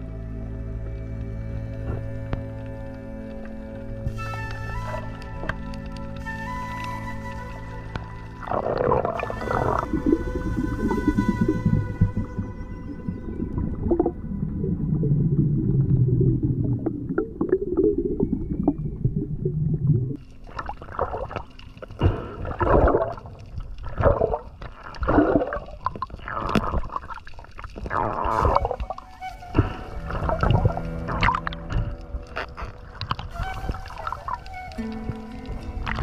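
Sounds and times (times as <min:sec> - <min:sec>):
water rushing and gurgling: 0:00.0 - 0:36.0.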